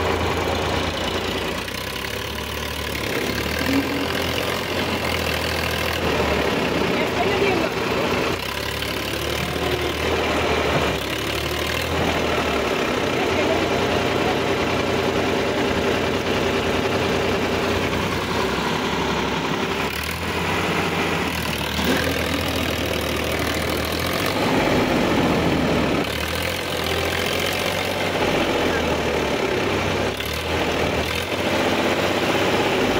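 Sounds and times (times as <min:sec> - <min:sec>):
tractor diesel engine running: 0:00.0 - 0:32.9.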